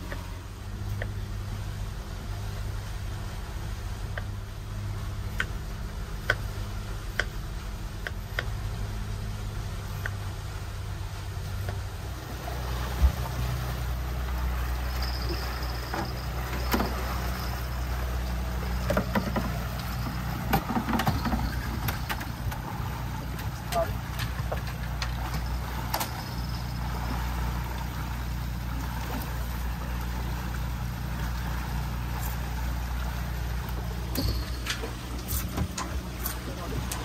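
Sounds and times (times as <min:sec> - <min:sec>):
outboard motors humming: 0:00.0 - 0:37.0.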